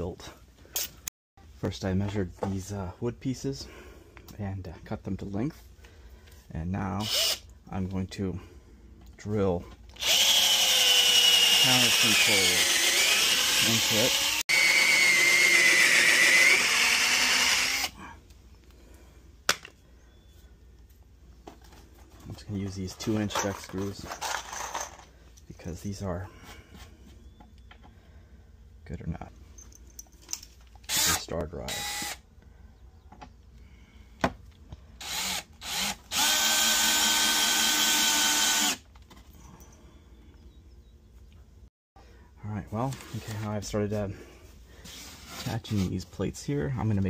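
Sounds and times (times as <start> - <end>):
cordless drill whining into wood: 7.0 - 7.5, 9.9 - 18.0, 30.9 - 32.2, 35.0 - 38.9.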